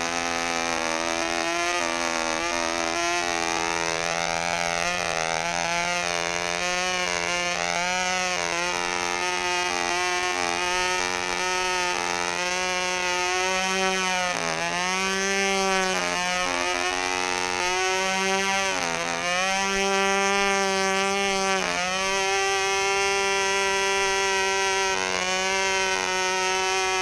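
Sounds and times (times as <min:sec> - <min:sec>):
model plane engine buzzing: 0:00.0 - 0:27.0.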